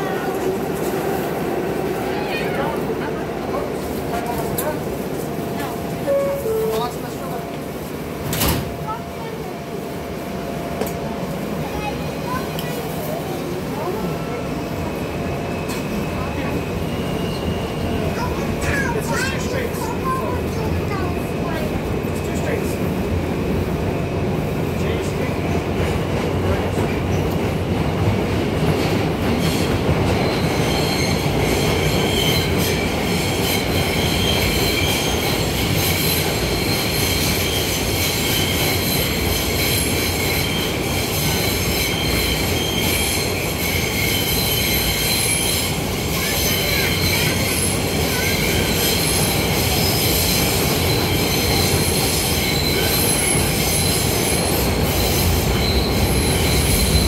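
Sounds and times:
train wheels rumbling on rail: 0:00.0 - 0:57.0
wheels squealing: 0:30.2 - 0:57.0.

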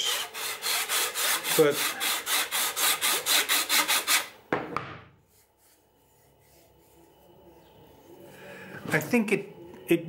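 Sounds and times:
sanding belt rasping on plastic: 0:00.0 - 0:04.3
sharp knocks: 0:04.5 - 0:05.1.

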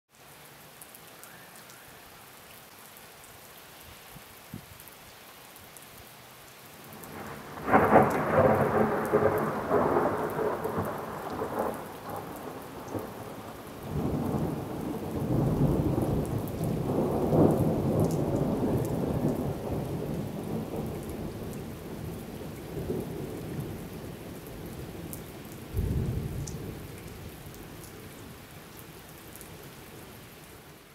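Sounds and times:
rain hissing: 0:00.1 - 0:30.9
thunder clap and rumble: 0:07.1 - 0:13.2.

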